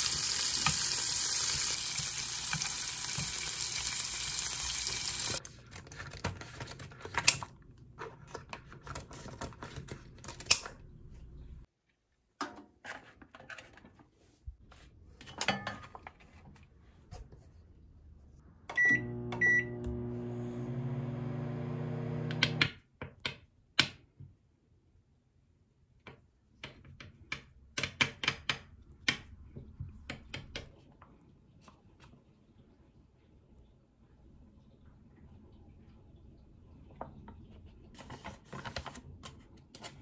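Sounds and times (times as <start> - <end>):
shrimp sizzling in a frying pan: 0.0 - 5.4
microwave oven beeps: 18.7 - 22.6
microwave oven humming: 18.7 - 22.6.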